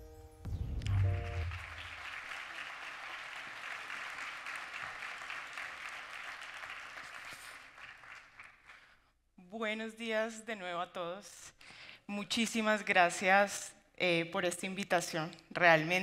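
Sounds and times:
music ending with boom: 0.4s - 1.9s
audience applauding: 0.8s - 9.0s.

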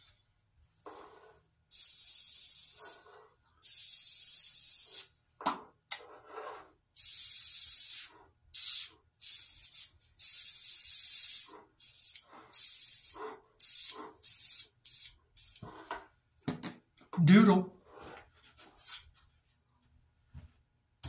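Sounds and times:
airbrush spraying hiss: 1.7s - 5.2s, 7.0s - 15.6s, 18.8s - 19.1s.

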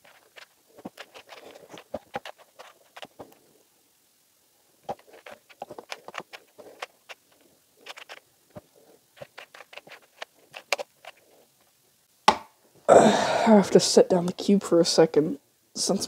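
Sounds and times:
plastic puzzle cube clicking: 0.1s - 3.4s, 4.9s - 8.2s, 9.2s - 11.2s.

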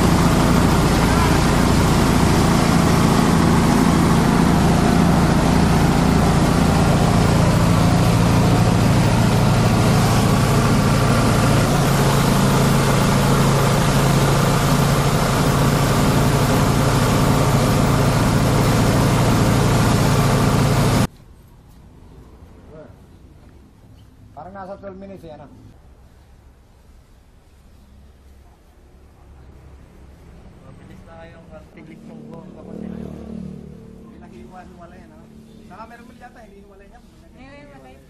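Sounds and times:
hiss of material being shredded: 0.0s - 21.1s
shredder engine drone: 0.0s - 21.1s, 31.8s - 36.2s.

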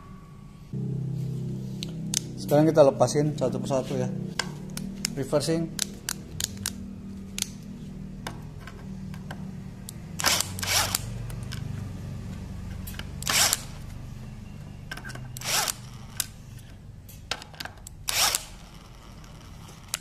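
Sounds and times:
impact driver backing out screws: 13.2s - 13.8s, 17.4s - 18.7s.

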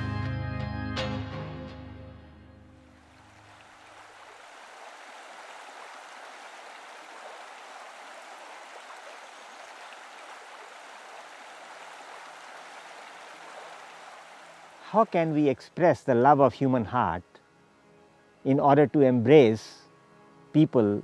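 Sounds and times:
flowing water rushing: 2.9s - 15.4s.

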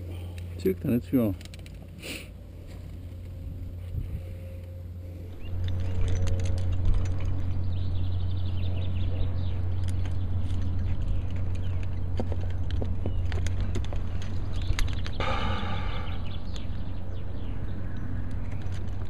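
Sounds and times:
climbing gear clicks and knocks: 0.3s - 2.0s, 4.6s - 15.2s, 17.8s - 19.0s
wind rumble on microphone: 3.3s - 19.0s.

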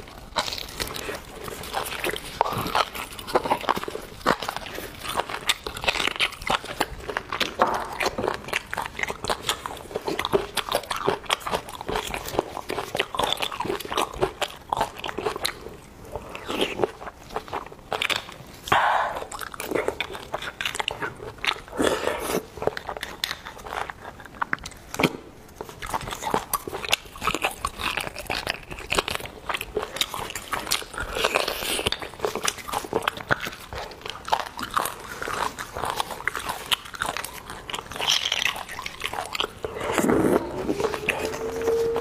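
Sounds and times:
wet chewing: 0.0s - 42.0s
sucking at bone: 18.7s - 24.2s, 34.9s - 42.0s.

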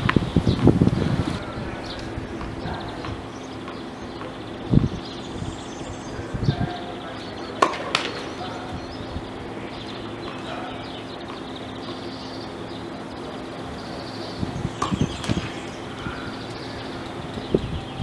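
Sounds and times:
faint hum: 0.0s - 18.0s
tennis ball bouncing: 7.5s - 8.4s, 14.8s - 15.7s
racket hitting tennis ball: 7.6s - 8.4s, 14.8s - 15.6s.

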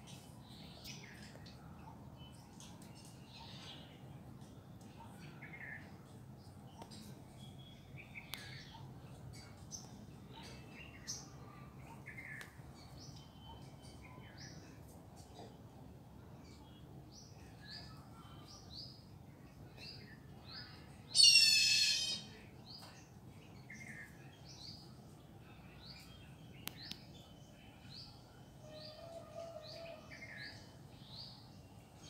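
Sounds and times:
loud harsh bird call: 21.2s - 22.4s.

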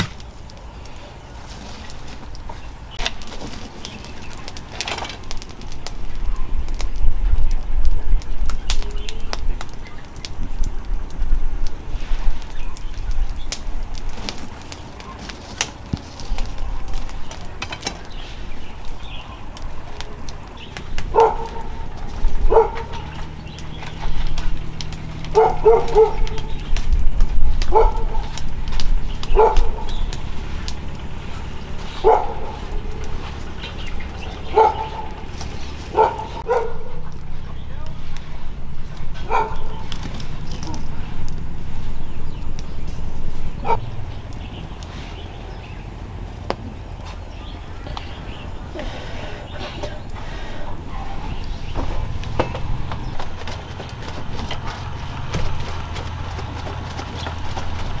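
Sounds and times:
low rumble: 16.4s - 58.0s
dog barking: 21.1s - 21.8s, 22.5s - 23.0s, 25.3s - 26.5s, 27.7s - 28.3s, 29.3s - 30.0s, 32.0s - 32.7s, 34.5s - 35.2s, 35.9s - 37.0s, 39.2s - 39.8s, 50.8s - 51.2s.

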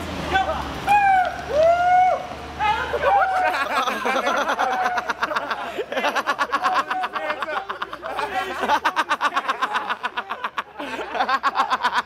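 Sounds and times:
people shouting and whooping: 0.3s - 12.0s
people laughing: 2.7s - 12.0s.

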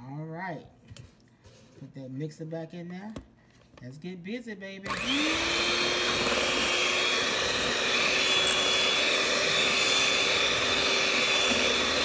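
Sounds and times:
electric mixer whirring: 4.9s - 12.0s.

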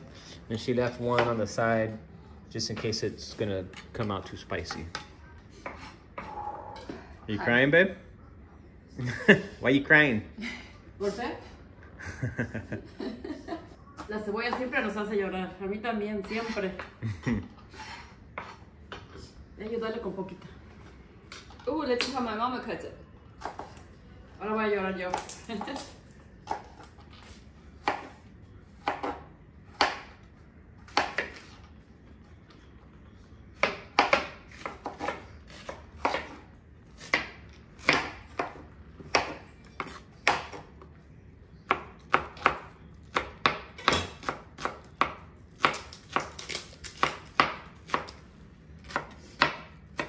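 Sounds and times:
knife chopping on cutting board: 27.8s - 28.2s, 28.8s - 30.2s, 33.6s - 36.4s, 37.0s - 40.6s, 48.8s - 50.0s.

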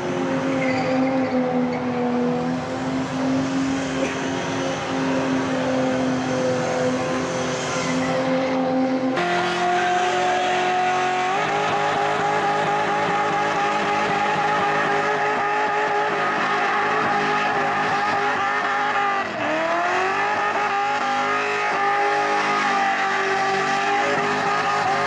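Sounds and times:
engines at high revs: 0.0s - 25.0s
tyres squealing: 20.3s - 25.0s.

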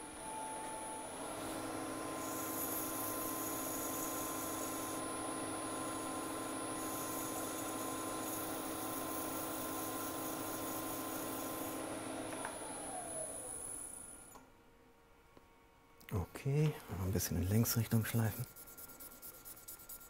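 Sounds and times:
wood lathe motor humming: 0.0s - 14.3s
abrasive sanding hiss: 2.2s - 5.1s, 5.9s - 11.7s, 17.5s - 20.0s.

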